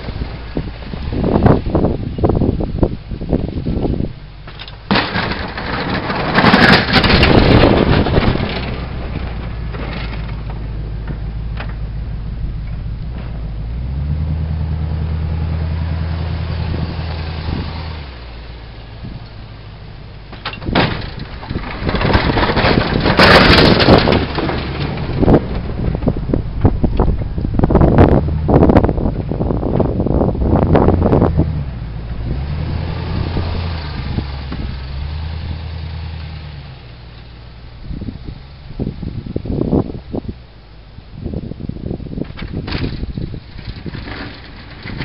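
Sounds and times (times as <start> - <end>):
truck engine running: 0.0 - 45.0.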